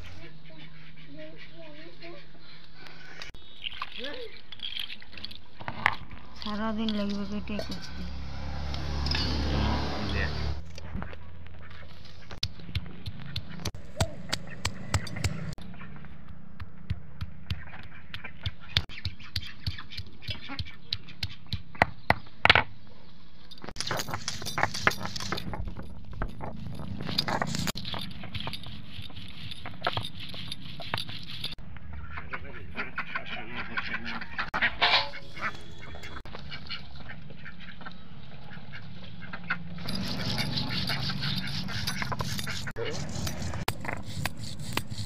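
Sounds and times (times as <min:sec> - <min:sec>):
ducks quacking: 0:00.0 - 0:03.3, 0:31.8 - 0:42.7
stone pestle grinding: 0:06.9 - 0:08.2, 0:12.4 - 0:15.6, 0:23.8 - 0:31.6, 0:39.8 - 0:45.0.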